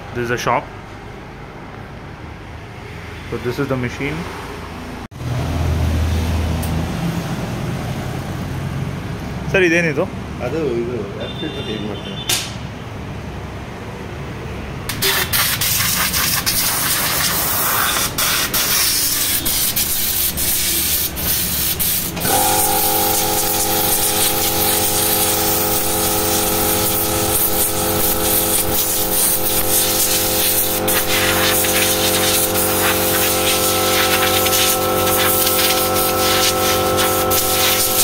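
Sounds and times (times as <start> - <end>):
air blow gun hissing: 14.9 - 38.0
steady machine hum: 22.1 - 38.0.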